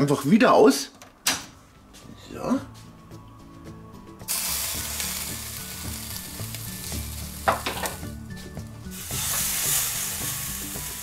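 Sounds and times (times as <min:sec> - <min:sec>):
meat sizzling on grill: 0:04.3 - 0:11.0.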